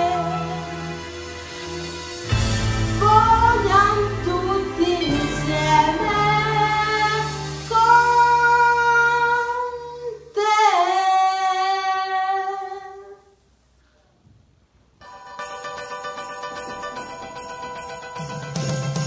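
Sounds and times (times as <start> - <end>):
soft musical accompaniment: 0.0 - 9.9, 15.0 - 19.0.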